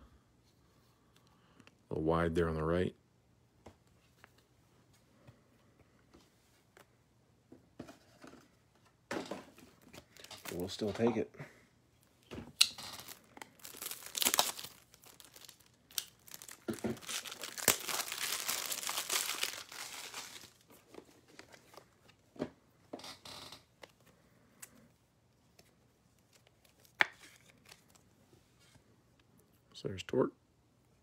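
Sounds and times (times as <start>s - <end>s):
wrapper crinkling and tearing: 10.0s - 10.8s, 12.7s - 21.8s.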